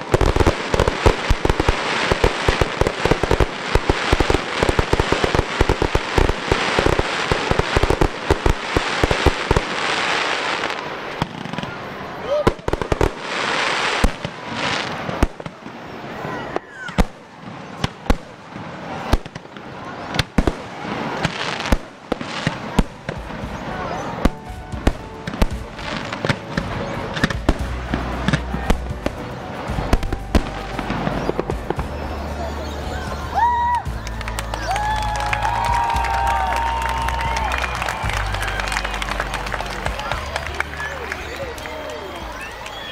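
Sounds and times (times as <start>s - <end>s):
fireworks hiss: 0.0s - 34.0s
fireworks bangs and cracks: 0.0s - 42.9s.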